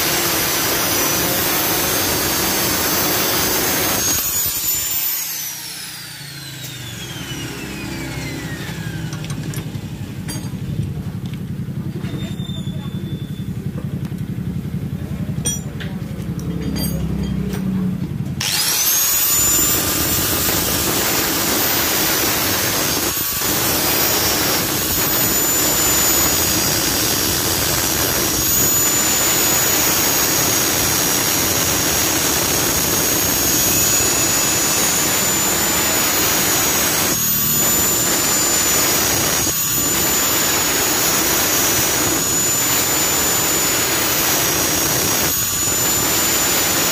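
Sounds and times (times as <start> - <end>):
angle grinder grinding metal: 0.0 - 10.6, 15.4 - 15.7, 16.6 - 17.4, 18.4 - 46.9.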